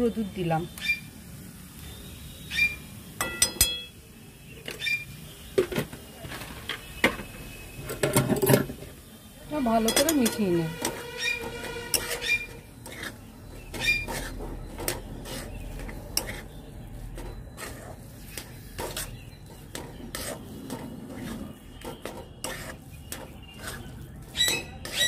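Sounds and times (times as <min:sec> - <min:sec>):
metal spatula scraping a pan: 0:09.5 - 0:25.0.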